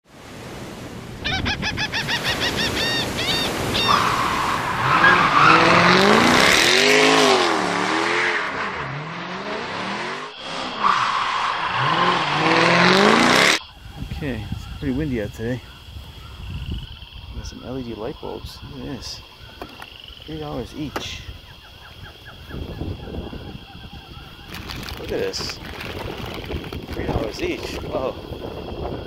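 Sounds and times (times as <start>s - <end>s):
tyres squealing: 2.2s - 13.6s
race car engines revving: 3.9s - 13.6s.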